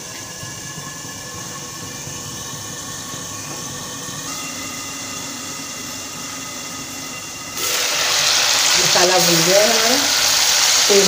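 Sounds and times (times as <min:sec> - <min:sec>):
steady hum and hiss: 0:04.2 - 0:11.0.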